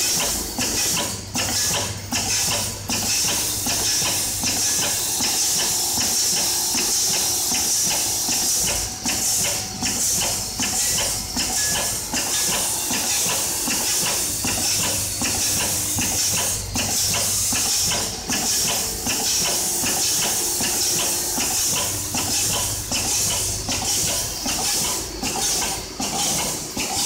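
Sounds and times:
clicks and clatters from chutes: 0:00.0 - 0:27.0
low machine hum: 0:13.7 - 0:27.0.

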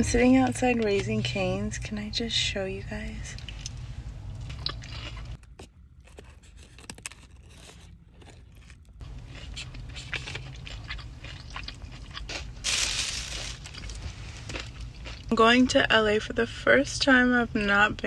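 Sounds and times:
steady low rumble: 0:00.0 - 0:06.0, 0:08.0 - 0:18.0
person chewing with crunches: 0:03.3 - 0:15.3.

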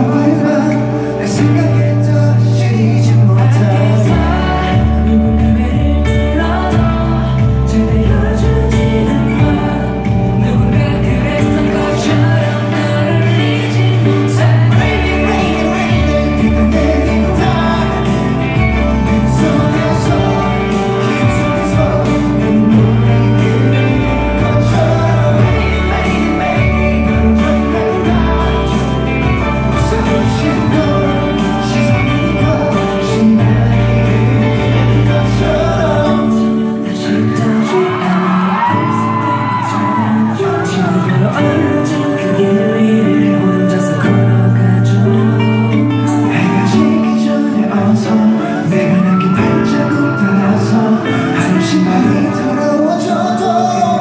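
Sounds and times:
band track with heavy bass: 0:00.0 - 0:54.0
male voices singing: 0:00.0 - 0:54.0
fans shouting: 0:37.0 - 0:41.7.

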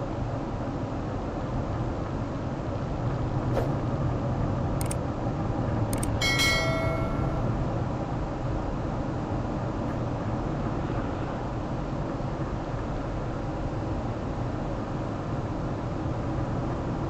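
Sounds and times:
mouse clicks: 0:04.8 - 0:05.0
bell chime: 0:06.2 - 0:07.7.

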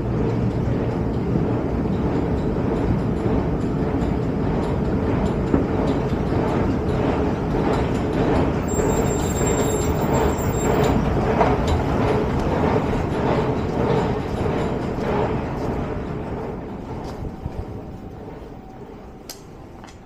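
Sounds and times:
rail station rumble: 0:00.0 - 0:20.0
high-pitched whine: 0:08.6 - 0:12.2.

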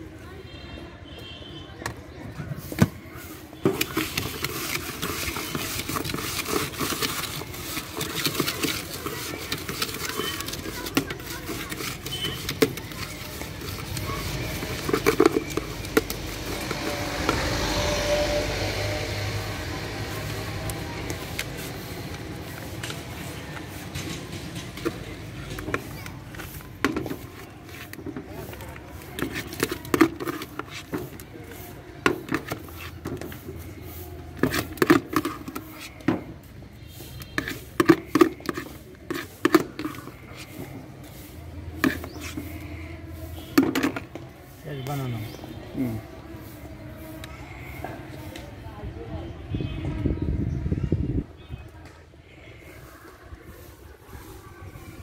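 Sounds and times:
road traffic: 0:00.0 - 0:55.0
metal spoon scraping plastic bucket: 0:02.6 - 0:48.2
snack mix rustling in plastic bowl: 0:03.6 - 0:36.1.

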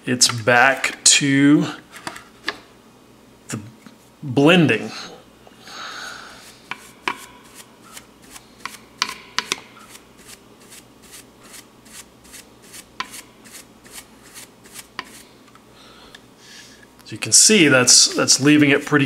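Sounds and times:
paintbrush scrubbing on plastic: 0:09.8 - 0:15.3.

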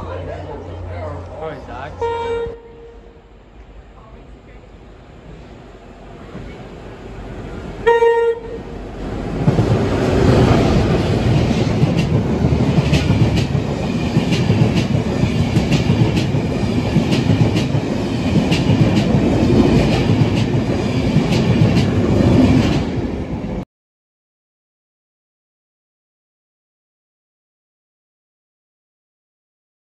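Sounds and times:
passing train rumble: 0:00.0 - 0:23.6.

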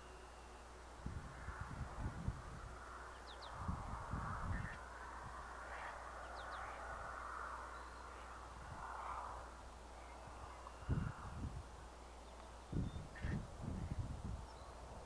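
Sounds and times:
birds calling: 0:04.4 - 0:08.5, 0:12.0 - 0:14.9.

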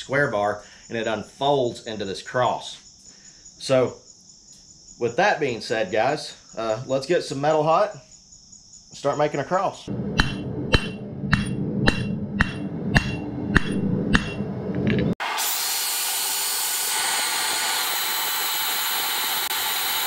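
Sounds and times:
steady hum: 0:09.9 - 0:15.2
hammer on anvil: 0:10.2 - 0:15.0
bandsaw cutting steel: 0:15.2 - 0:20.0.

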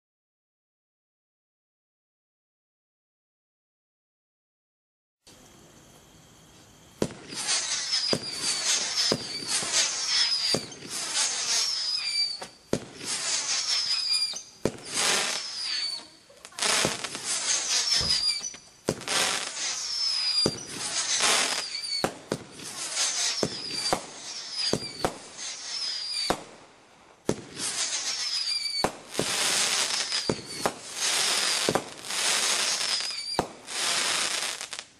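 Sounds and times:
crackling firework stars: 0:05.3 - 0:34.9
firework launch bangs: 0:07.0 - 0:26.6, 0:27.2 - 0:34.8.

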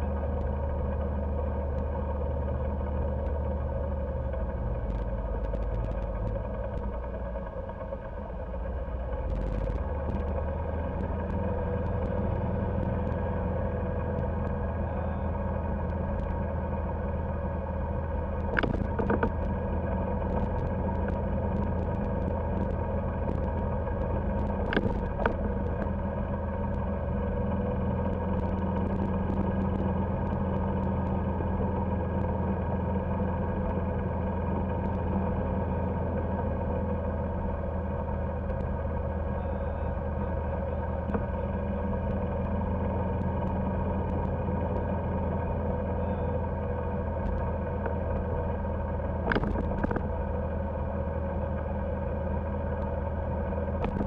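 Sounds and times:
golf cart driving: 0:00.0 - 0:54.0.

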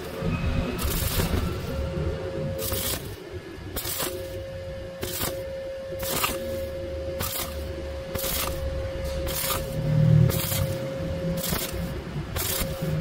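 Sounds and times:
welding arc hissing: 0:00.0 - 0:13.0.

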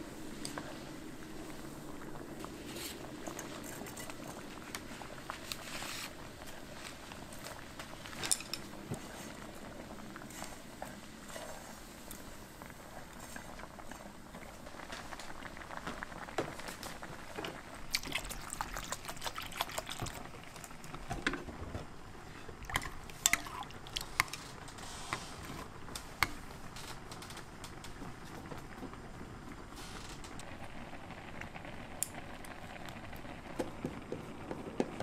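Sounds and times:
noodles simmering in a pan: 0:00.0 - 0:35.0
broth pouring and splashing: 0:17.8 - 0:21.0, 0:22.2 - 0:25.4.

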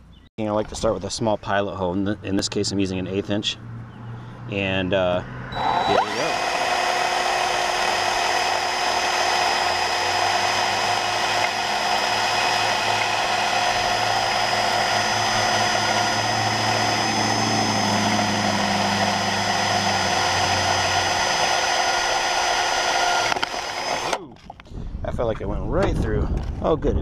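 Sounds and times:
cordless drill boring through metal: 0:05.6 - 0:24.3.

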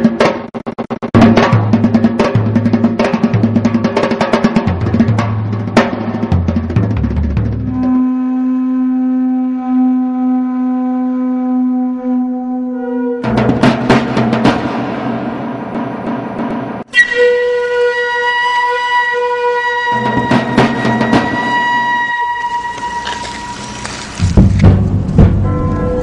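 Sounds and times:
drum-driven background music: 0:00.0 - 0:08.0, 0:13.2 - 0:17.3, 0:19.8 - 0:26.0
long held note: 0:07.7 - 0:13.2, 0:16.9 - 0:24.0.

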